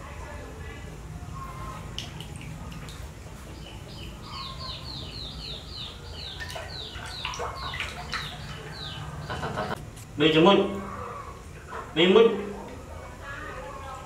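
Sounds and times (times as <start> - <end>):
water splashing in plastic basin: 1.8 - 4.1, 6.2 - 9.8
high chirping calls: 3.5 - 9.8.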